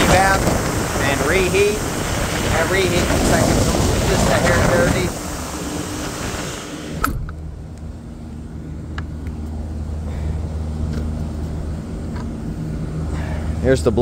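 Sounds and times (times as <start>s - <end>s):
airy hiss: 0.0s - 7.0s
air unit humming: 0.0s - 14.0s.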